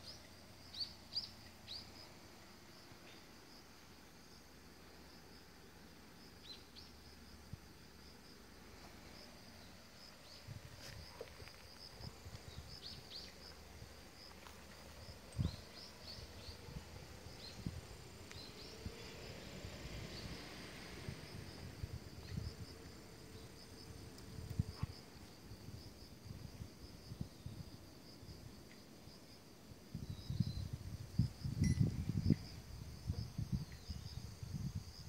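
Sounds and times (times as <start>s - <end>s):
crickets chirping: 0.0s - 35.0s.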